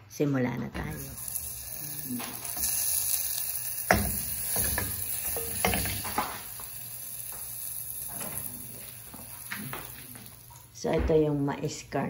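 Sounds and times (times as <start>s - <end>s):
butter sizzling in a pot: 0.8s - 10.8s.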